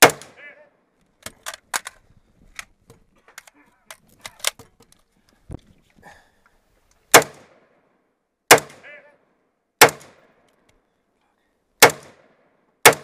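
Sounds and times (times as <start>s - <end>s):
rifle shots with echo: 0.0s - 0.6s, 7.1s - 7.8s, 8.5s - 9.0s, 9.8s - 10.4s, 11.8s - 13.0s.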